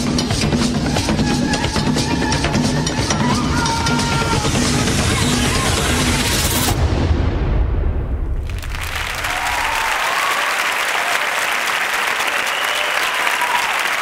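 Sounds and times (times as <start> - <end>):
audience applause: 8.4 - 14.0.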